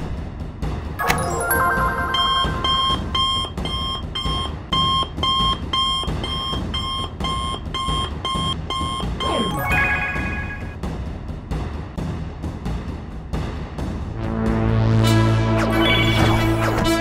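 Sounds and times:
short electronic chime: 0:01.0 - 0:03.4
electronic alarm beeping: 0:01.0 - 0:10.8.

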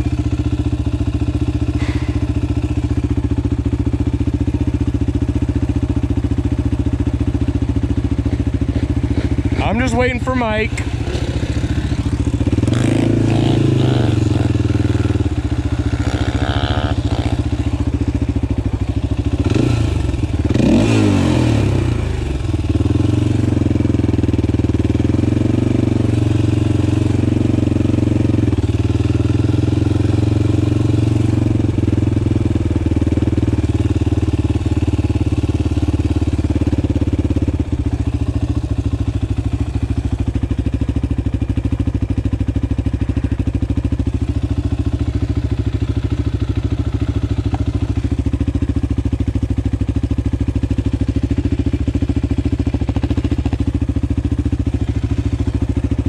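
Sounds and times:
atv engine idling: 0:00.0 - 0:56.0.

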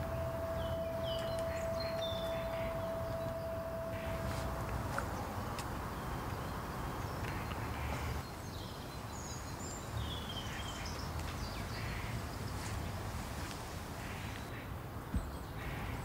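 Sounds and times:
high bird chirps: 0:00.0 - 0:05.3
low background rumble: 0:00.0 - 0:08.2.

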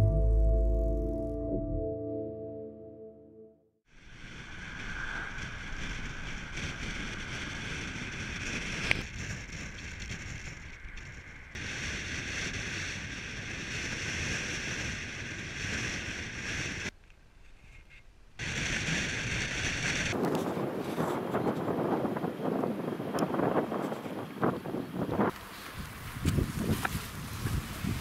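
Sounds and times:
wind buffeting microphone: 0:04.2 - 0:16.9, 0:18.4 - 0:28.0
road noise: 0:20.1 - 0:28.0.

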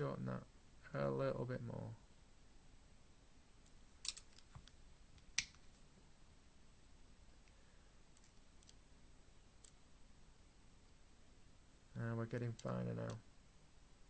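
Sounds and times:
small metal clicks: 0:03.6 - 0:04.8.

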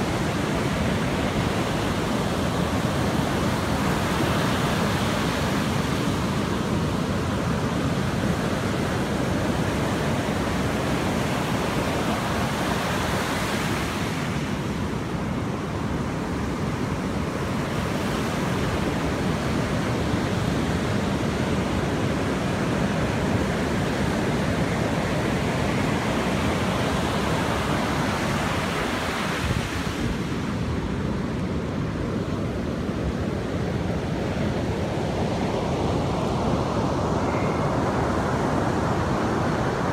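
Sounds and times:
ocean surf washing up beach: 0:00.0 - 0:39.9.

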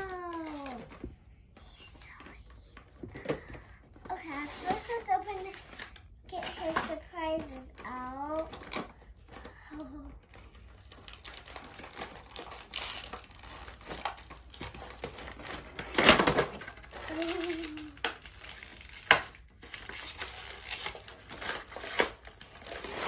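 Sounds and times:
child's voice: 0:00.0 - 0:01.0, 0:01.6 - 0:10.2, 0:17.0 - 0:18.0
cardboard and plastic rustling: 0:00.0 - 0:23.0.

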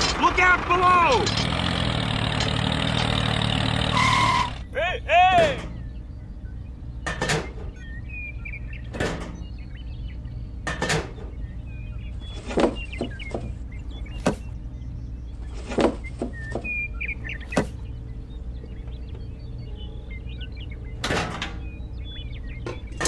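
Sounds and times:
low hum: 0:00.0 - 0:23.0
sharp knocks and clicks: 0:07.0 - 0:07.8.

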